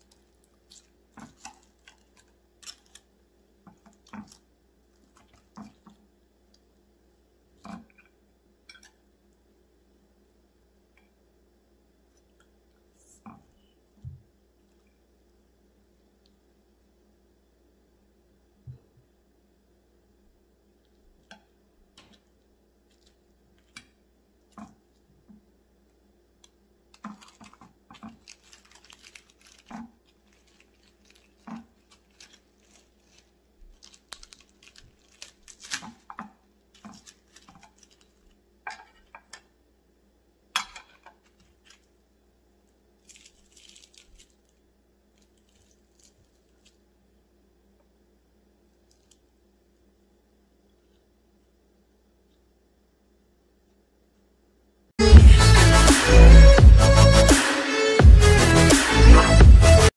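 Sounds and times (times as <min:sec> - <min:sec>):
crispy skin crackling and crunching: 0:00.0 - 0:06.7, 0:22.0 - 0:25.1, 0:26.3 - 0:39.2, 0:42.6 - 0:46.9, 0:48.7 - 0:49.4.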